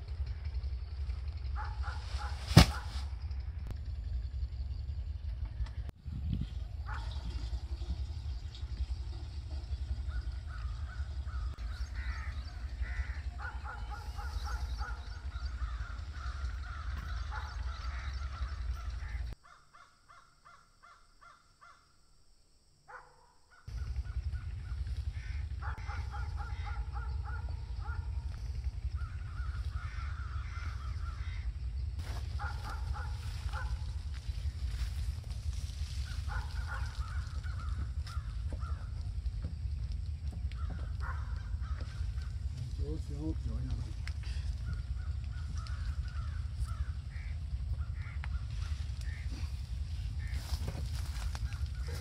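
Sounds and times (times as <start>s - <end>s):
steady low rumble: 0.0s - 19.4s, 23.7s - 52.0s
crows cawing: 10.1s - 21.9s, 23.5s - 34.9s, 35.8s - 39.6s, 40.3s - 42.7s, 44.0s - 52.0s.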